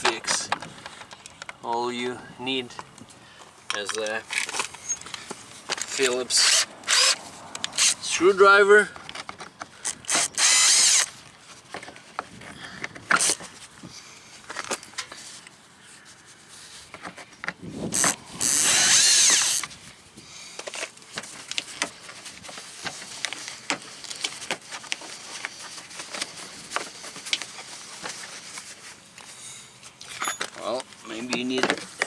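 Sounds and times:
cordless drill whine: 6.4 - 7.2, 10.1 - 11.1, 17.9 - 19.6.

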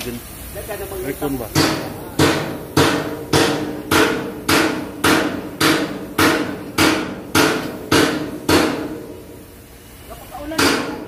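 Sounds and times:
hammer striking metal: 1.6 - 9.2, 10.5 - 11.0.

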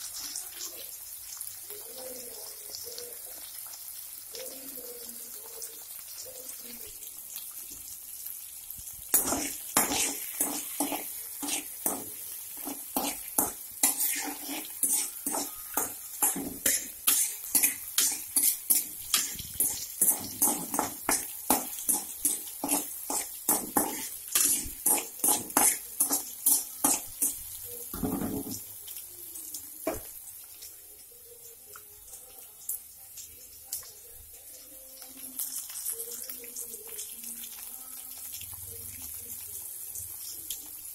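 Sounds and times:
oil sizzling: 0.0 - 40.9
spatula scraping metal pan: 9.1 - 28.5.

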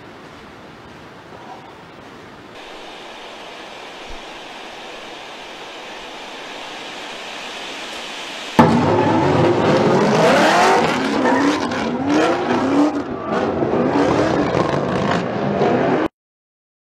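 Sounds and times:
car engines revving hard: 8.0 - 16.1
tyre squeal: 9.9 - 12.2.

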